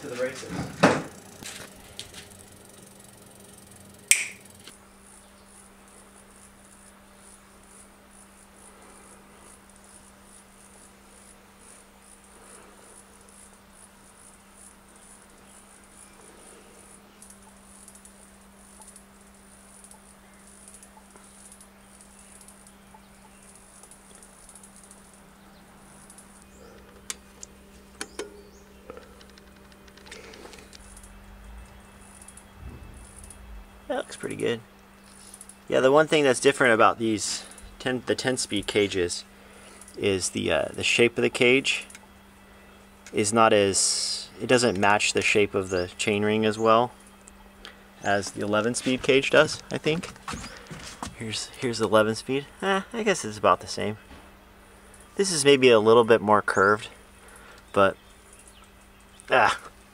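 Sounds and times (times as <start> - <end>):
low hum: 0.0 - 53.4
multitool clicking: 4.0 - 4.8
sharp click: 4.0 - 4.8, 32.2 - 33.5.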